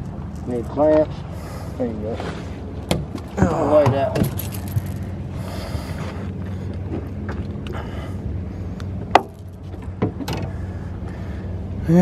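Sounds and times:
boat motor humming: 2.4s - 12.0s.

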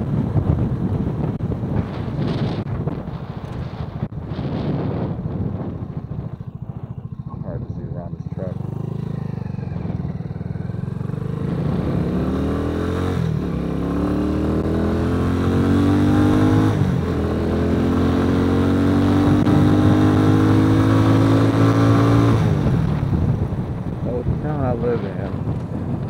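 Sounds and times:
motorcycle engine accelerating: 0.0s - 26.0s.

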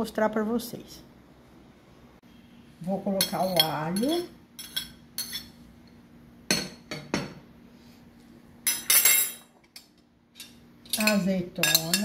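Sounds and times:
metal spoon clinking on plates: 3.2s - 5.6s, 8.6s - 12.0s.

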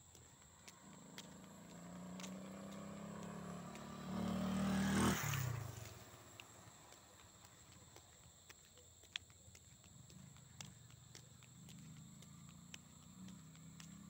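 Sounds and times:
vehicle passing by: 0.6s - 7.7s, 11.6s - 14.0s.

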